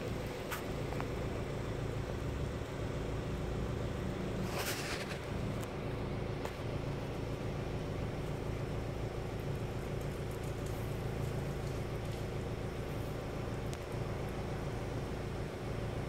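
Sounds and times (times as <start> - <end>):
low mechanical hum: 0.0 - 16.0
brief hiss: 4.4 - 5.3.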